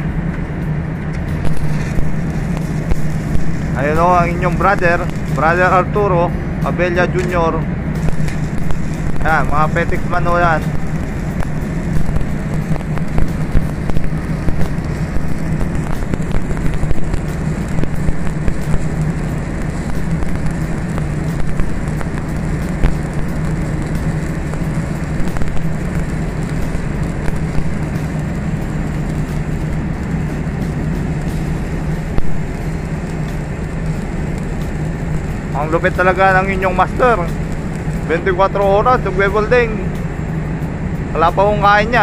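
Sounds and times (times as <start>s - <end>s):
arc welding crackling: 0.0s - 42.0s
low machine hum: 0.0s - 42.0s
sharp welding pops: 0.2s - 42.0s.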